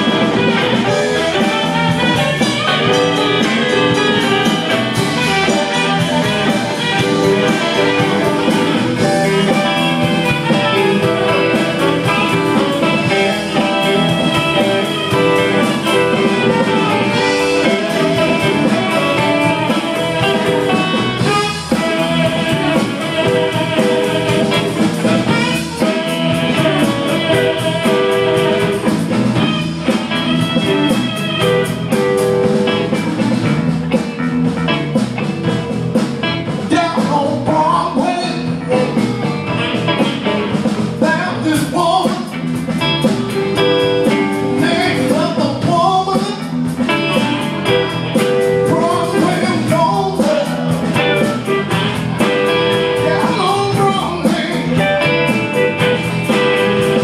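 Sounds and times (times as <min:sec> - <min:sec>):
saxophone: 0:00.0 - 0:33.4
bass guitar: 0:00.0 - 0:57.0
drum kit: 0:00.0 - 0:57.0
electric guitar: 0:00.0 - 0:57.0.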